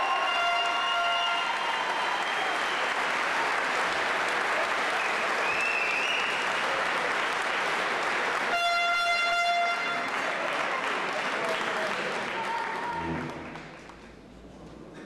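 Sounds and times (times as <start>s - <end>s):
crowd applauding: 0.0s - 15.0s
whistle: 5.0s - 6.4s
horn steady note: 8.5s - 10.1s, 12.9s - 13.8s.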